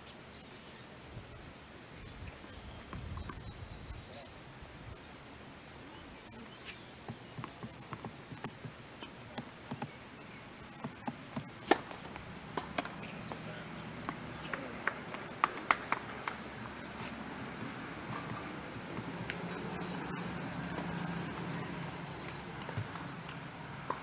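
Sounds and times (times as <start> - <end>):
tennis ball hit and bouncing: 10.8 - 24.0.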